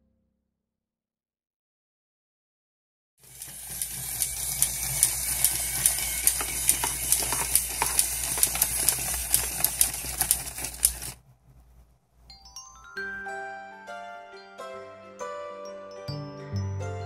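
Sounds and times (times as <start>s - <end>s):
toy clicking: 3.2s - 11.2s
toy motor whirring: 3.2s - 11.2s.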